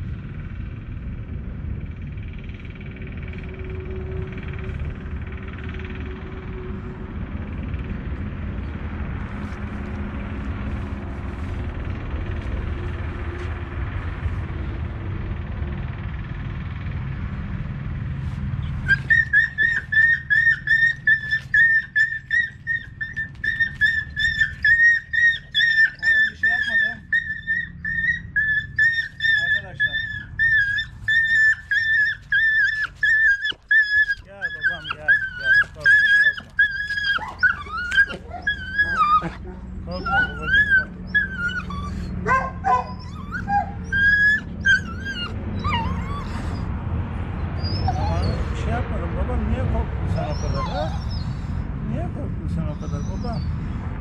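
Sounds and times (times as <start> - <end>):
dog whimpering: 18.6 - 46.8, 47.4 - 48.6, 50.0 - 51.6, 52.5 - 53.6.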